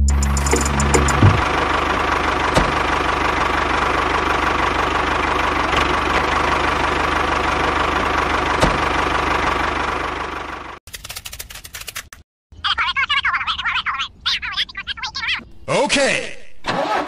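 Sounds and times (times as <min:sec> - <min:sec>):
tractor engine chugging: 0:00.1 - 0:10.8.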